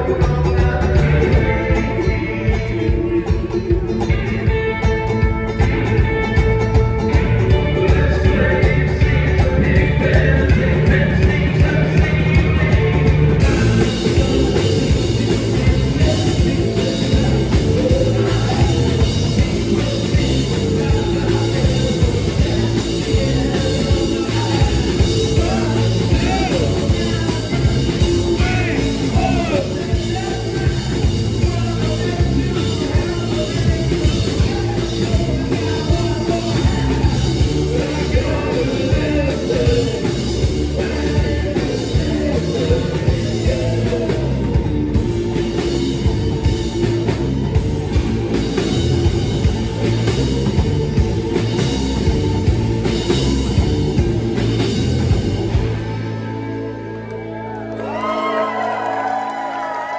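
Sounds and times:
live band playing: 0:00.0 - 0:59.9
person singing lead: 0:07.4 - 0:47.6.

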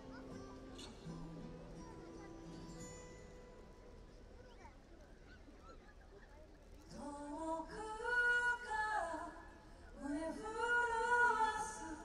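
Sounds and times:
woman singing: 0:06.9 - 0:12.0.

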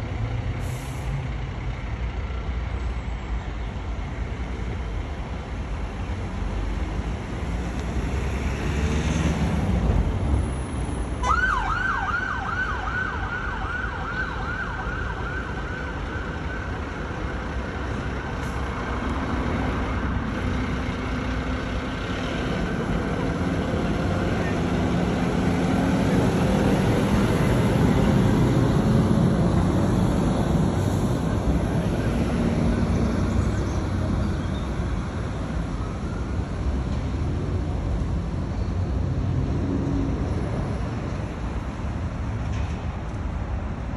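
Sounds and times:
siren yelping: 0:11.2 - 0:16.7.

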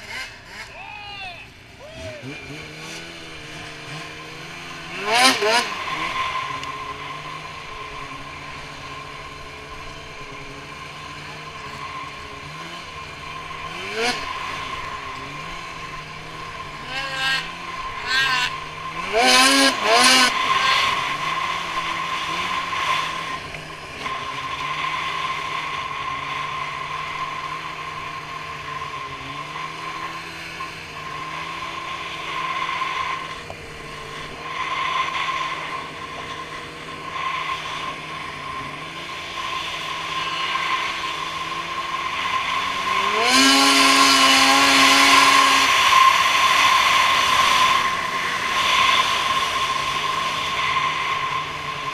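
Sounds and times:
snowmobile engine revving: 0:00.0 - 0:51.9.

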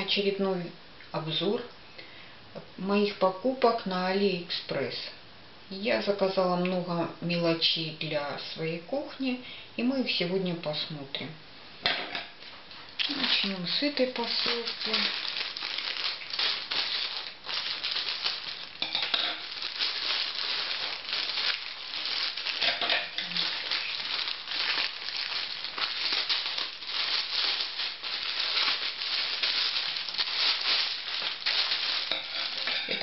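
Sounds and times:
plastic bag crinkling: 0:12.8 - 0:33.0.

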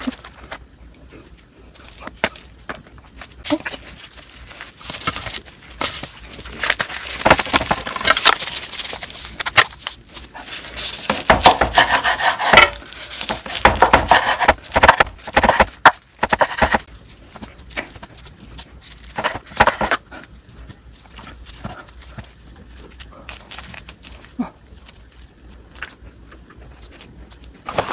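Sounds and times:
bamboo mat rustling: 0:00.0 - 0:27.9
wooden spatula scraping: 0:10.2 - 0:18.0
knife cutting on cutting board: 0:11.5 - 0:12.8.

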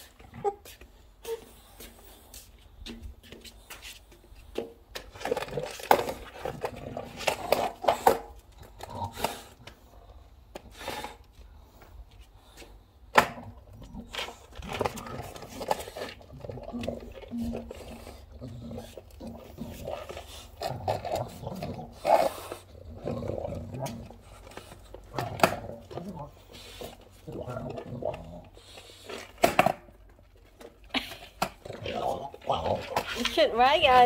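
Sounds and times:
dog teeth scraping wood: 0:13.7 - 0:29.8, 0:31.4 - 0:34.0.

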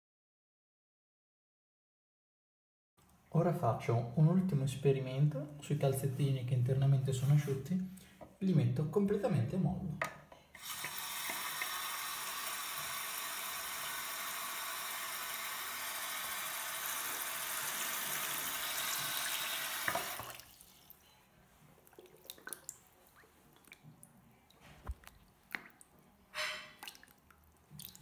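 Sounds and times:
tap water pouring: 0:10.6 - 0:21.0, 0:21.8 - 0:26.0, 0:26.6 - 0:28.0
water dripping and splashing: 0:18.9 - 0:21.0, 0:21.8 - 0:26.1, 0:26.7 - 0:28.0.

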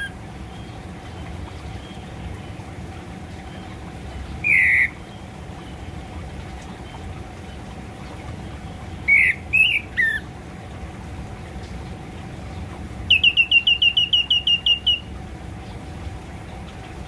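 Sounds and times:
low background noise: 0:00.0 - 0:17.0
bird harsh calls: 0:04.4 - 0:05.8, 0:08.7 - 0:10.3, 0:13.1 - 0:15.1.

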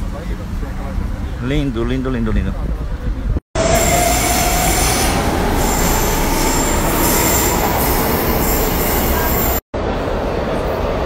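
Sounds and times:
train rumbling: 0:02.3 - 0:11.0
wheels squealing on rails: 0:03.6 - 0:09.6.

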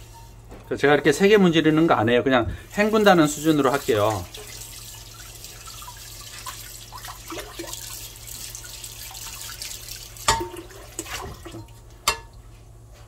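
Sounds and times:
scrubber rubbing pan: 0:00.0 - 0:00.4, 0:01.1 - 0:11.6
tap water running: 0:02.5 - 0:12.4
metal pan clank: 0:10.3 - 0:10.6, 0:12.0 - 0:12.4.

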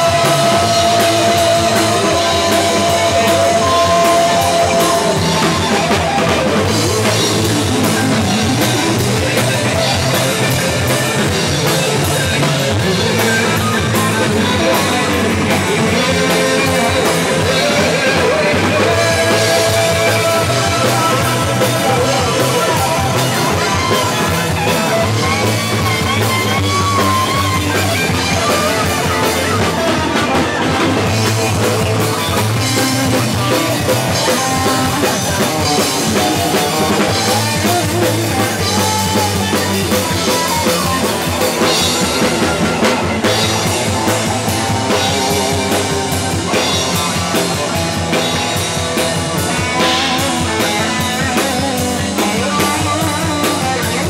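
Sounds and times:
drum kit and cymbals: 0:00.0 - 0:54.0
electric guitar: 0:00.0 - 0:54.0
live rock band playing: 0:00.0 - 0:54.0.

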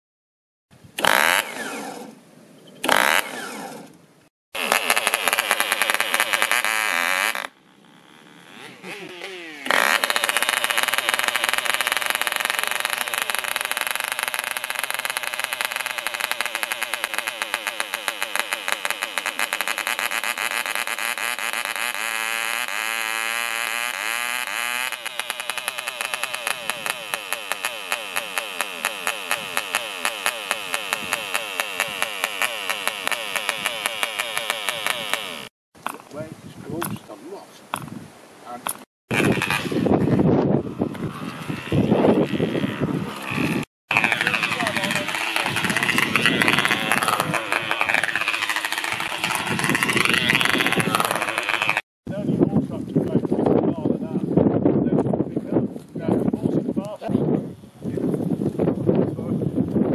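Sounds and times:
model engine running at high revs: 0:01.0 - 0:02.2, 0:02.8 - 0:04.0, 0:04.6 - 0:35.5, 0:39.1 - 0:51.9.

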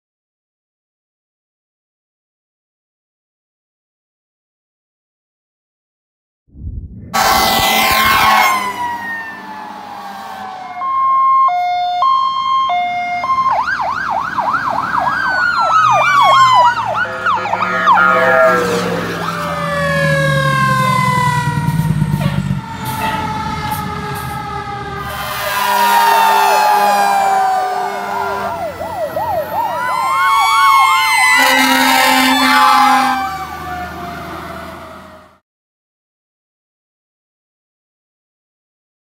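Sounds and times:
mechanical siren wailing: 0:07.1 - 0:35.4
two-tone hi-lo siren: 0:07.1 - 0:35.4
fast electronic siren yelp: 0:07.2 - 0:34.8.

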